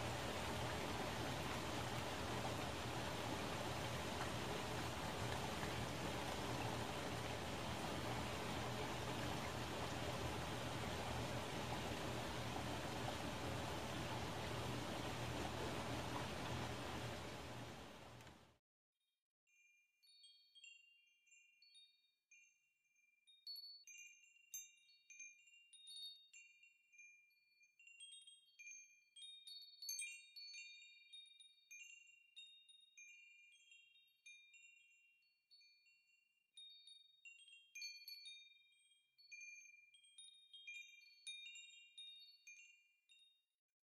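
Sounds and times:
faint high-pitched chimes: 19.5 - 43.5.

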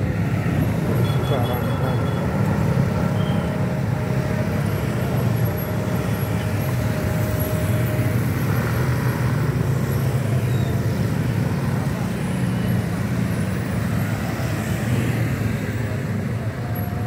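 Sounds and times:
scooters and motorcycles passing: 0.0 - 17.0.

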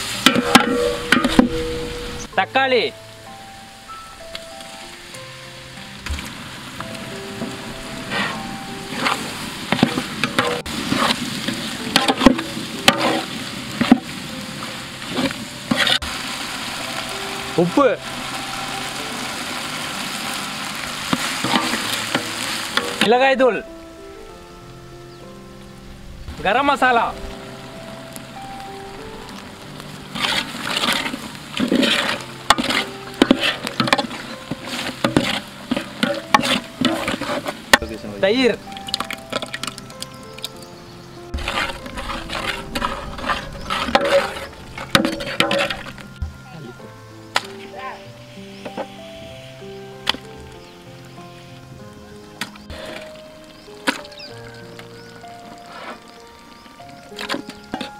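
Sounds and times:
frying oil sizzling: 0.0 - 23.9, 24.6 - 57.9
metal ladle scraping a pot: 0.1 - 2.3, 8.1 - 14.1, 15.0 - 16.1, 21.1 - 23.0, 30.1 - 37.9, 41.3 - 46.2, 52.6 - 53.2, 55.5 - 56.2
wet squelching stirring: 30.1 - 37.9, 41.3 - 46.2.

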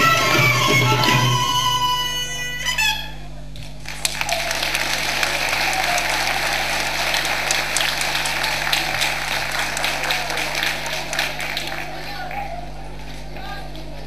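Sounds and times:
audience applauding: 3.8 - 14.0.

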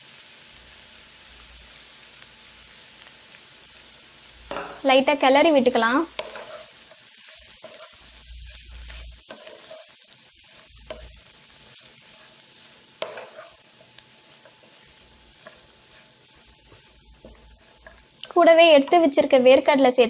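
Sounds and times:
faint sizzle: 0.0 - 20.0
spatula tapping pan: 4.5 - 4.9, 6.1 - 7.9, 10.8 - 11.2, 13.0 - 19.5
wooden spatula scraping a pan: 5.6 - 19.6.

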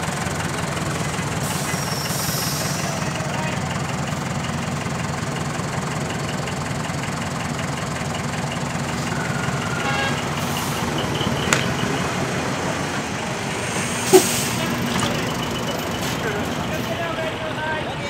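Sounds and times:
diesel truck engine idling: 0.0 - 18.0.

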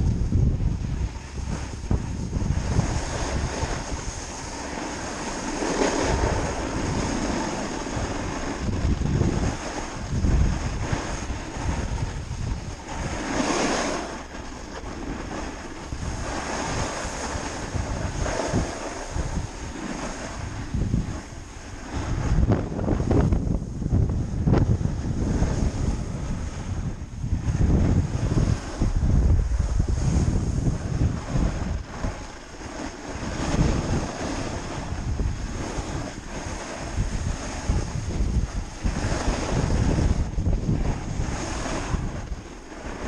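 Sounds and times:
snowboard sliding over snow: 0.0 - 43.0
wind buffeting microphone: 0.0 - 43.0.

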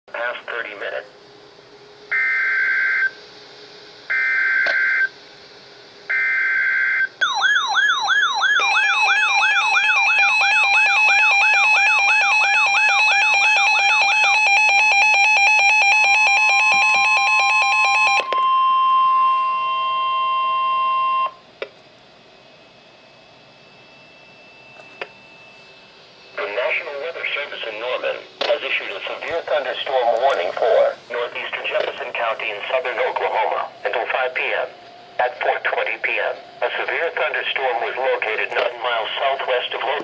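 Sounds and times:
steady warning tone: 0.1 - 5.2, 6.0 - 21.5, 22.1 - 40.0
warbling siren alarm with beeping: 2.1 - 3.2, 4.1 - 5.1, 6.1 - 21.4.

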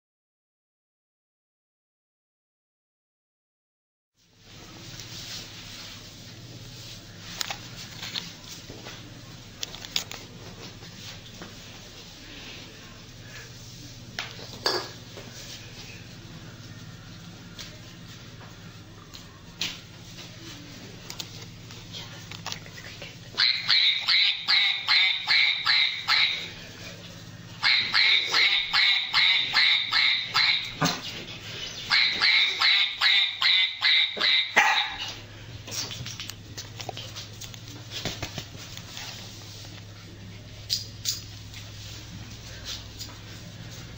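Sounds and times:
small dog yapping: 34.2 - 35.1.

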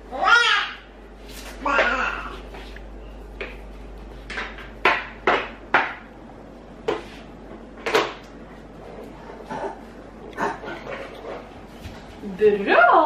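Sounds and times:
knocks and clatters in a kitchen: 4.2 - 6.2, 6.8 - 8.3.

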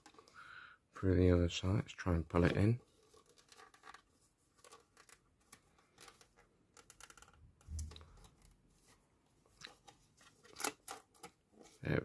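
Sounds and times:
thin card rustling and scraping: 2.4 - 11.9.

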